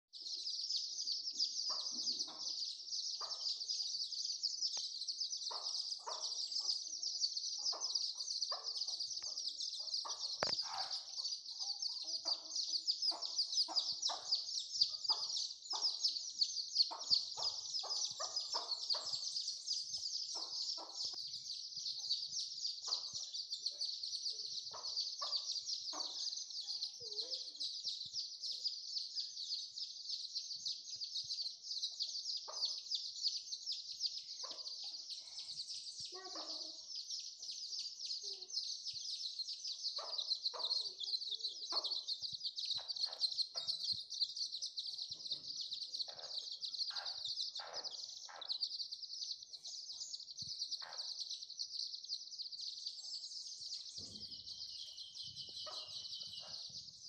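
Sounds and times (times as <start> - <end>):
chicks peeping: 0.2 - 57.0
hen clucking: 5.5 - 19.6.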